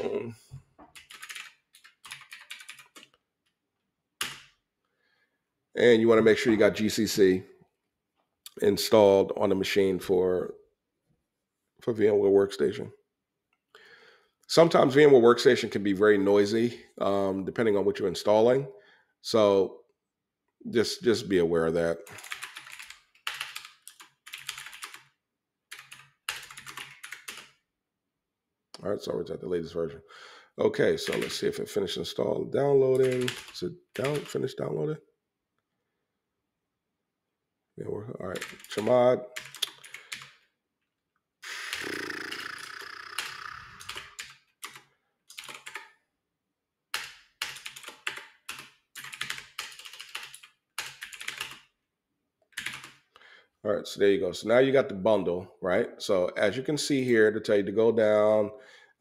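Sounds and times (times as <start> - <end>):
typing on computer keyboard: 0.8 - 3.2, 4.2 - 4.5, 22.0 - 27.6, 31.0 - 31.5, 33.0 - 34.4, 38.3 - 40.4, 41.7 - 46.0, 46.9 - 51.7, 52.5 - 53.1.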